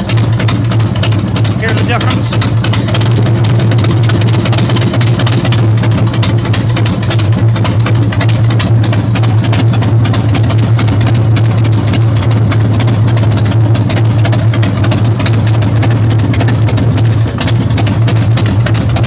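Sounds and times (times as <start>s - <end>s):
motorcycle engine idling: 0.0s - 19.0s.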